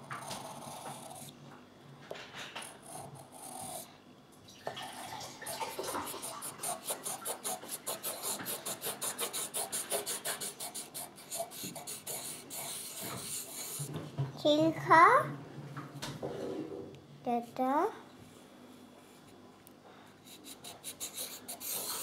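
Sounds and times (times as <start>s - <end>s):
pencil scribbling on paper: 0.0s - 1.3s, 5.4s - 13.9s, 20.2s - 22.0s.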